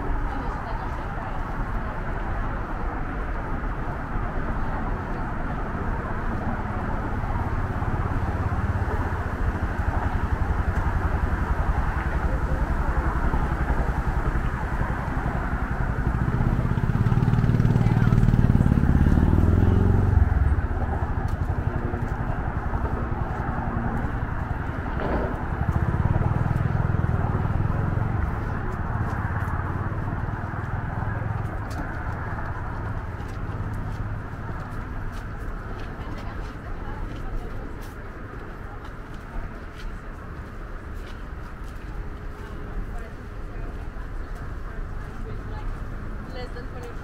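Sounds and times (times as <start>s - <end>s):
road traffic hum: 0.0s - 47.0s
vehicle engine accelerating: 6.2s - 35.6s.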